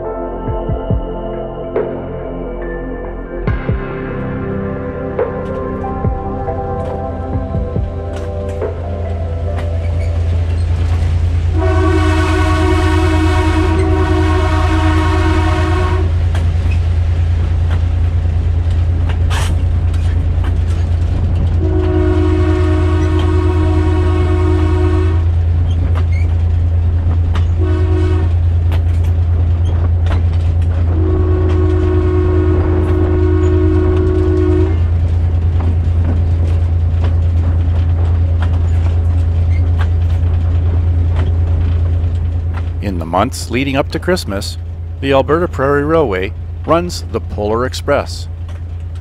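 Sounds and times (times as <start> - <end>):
train rumbling: 0.0 - 49.0
rail clicks: 5.2 - 49.0
diesel locomotive horn blasts: 8.1 - 16.3, 21.5 - 25.5, 27.5 - 28.5, 30.8 - 35.3.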